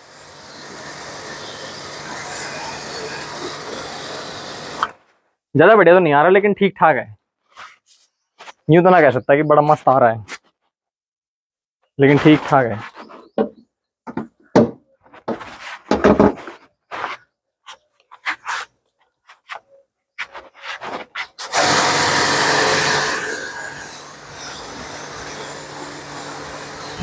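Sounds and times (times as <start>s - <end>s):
pressure washer motor hum: 0.0s - 4.9s, 21.4s - 23.2s, 24.0s - 27.0s.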